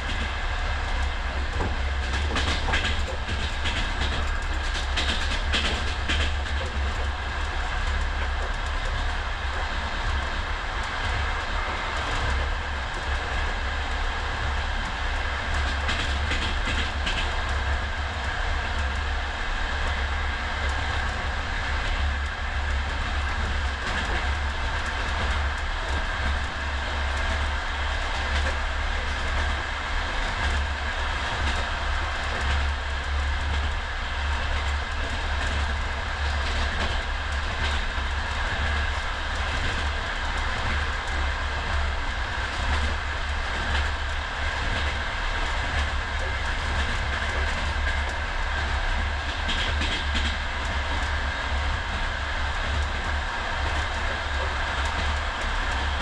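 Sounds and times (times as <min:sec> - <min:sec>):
wheels clacking over rail joints: 0:00.0 - 0:19.2
train carriage rumble: 0:00.0 - 0:56.0.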